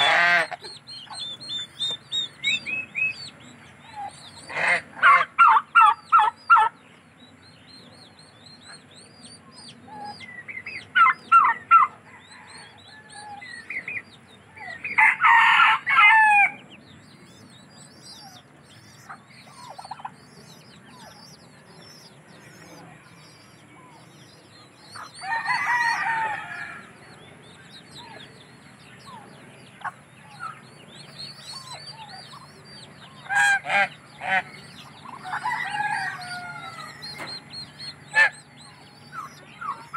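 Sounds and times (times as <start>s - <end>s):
duckling peeping: 0.0s - 15.0s, 15.9s - 39.9s
poultry clucking: 0.0s - 39.9s
rooster crowing: 11.4s - 13.6s, 14.7s - 16.6s, 25.2s - 27.1s, 35.0s - 37.5s.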